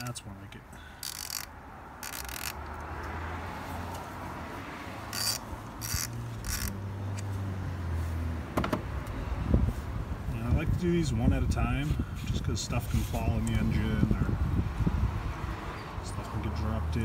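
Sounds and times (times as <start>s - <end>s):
socket ratchet clicking: 1.0s - 3.1s, 5.1s - 7.3s.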